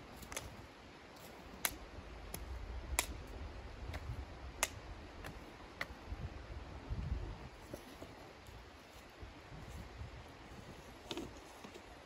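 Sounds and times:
dry twigs snapping: 1.6s - 3.3s.

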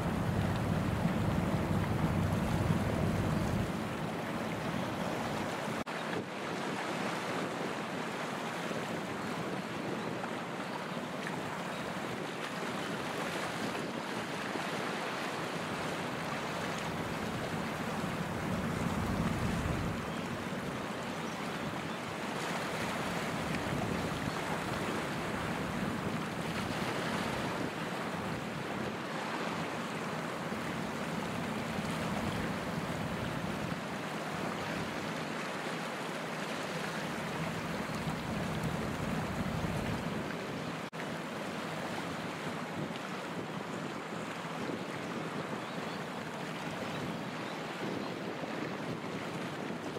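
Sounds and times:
low rumble: 0.0s - 3.8s
sea water rushing: 0.0s - 47.4s.

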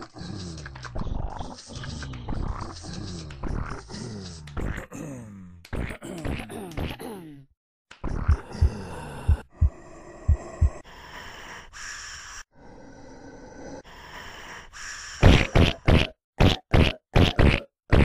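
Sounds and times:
person snorting: 8.1s - 10.8s
wheezy rasping breaths: 8.3s - 15.2s.

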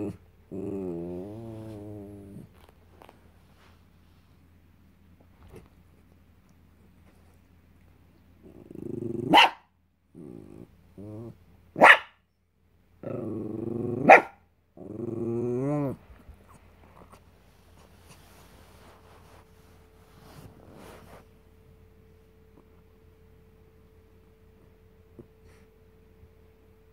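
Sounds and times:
small dog growling: 0.0s - 3.1s, 8.4s - 9.4s, 10.1s - 11.4s, 13.0s - 17.2s
dog barking sharply: 9.3s - 9.6s, 11.8s - 12.2s.

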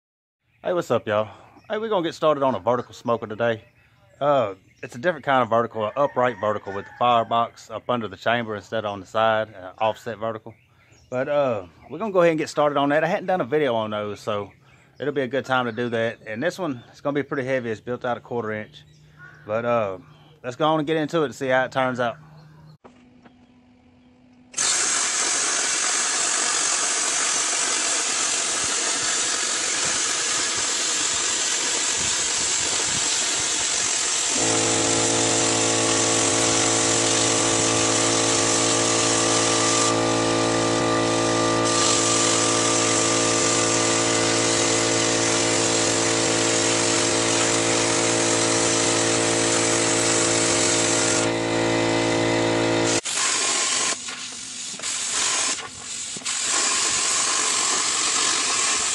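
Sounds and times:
plasma cutter air rush: 24.6s - 51.2s, 52.8s - 58.9s
buzzing hum: 34.3s - 53.1s.

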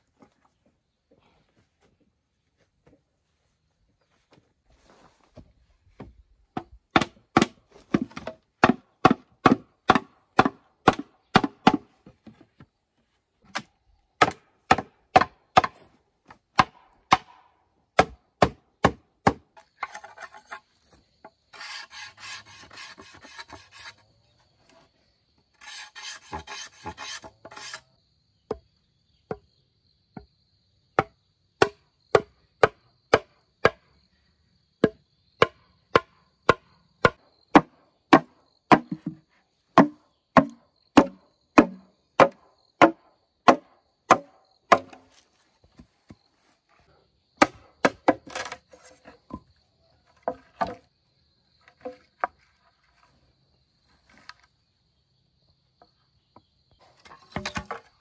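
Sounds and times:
chopping bamboo: 6.5s - 12.4s, 13.4s - 15.9s, 16.5s - 20.6s, 31.0s - 33.8s, 34.8s - 39.2s, 39.8s - 45.2s, 47.4s - 49.4s, 57.0s - 58.0s
rasping scraping on bamboo: 19.6s - 20.9s, 21.5s - 24.1s, 25.5s - 27.9s.

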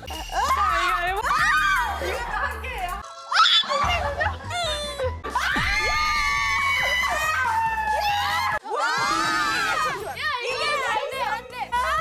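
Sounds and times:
woman screaming: 5.3s - 10.0s.

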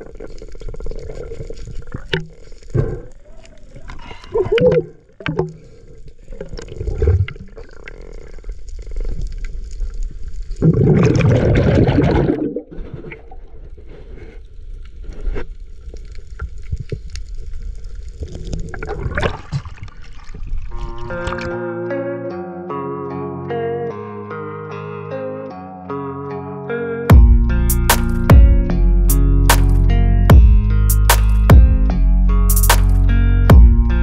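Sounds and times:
water sloshing and gurgling: 0.0s - 21.6s
water rushing: 10.6s - 13.0s.

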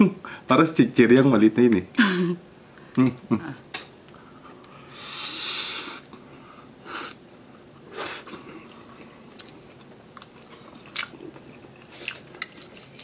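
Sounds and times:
soft chewing with mouth clicks: 7.7s - 13.0s.

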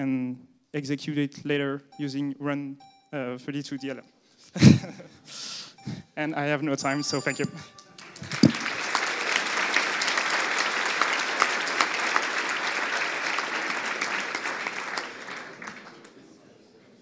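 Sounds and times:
audience clapping: 7.8s - 16.4s.

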